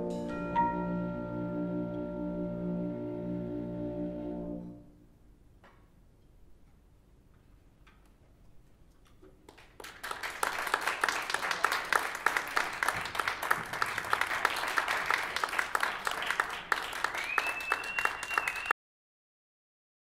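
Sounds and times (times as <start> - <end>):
audience clapping: 9.4 - 18.8
high whistle: 17.1 - 18.8.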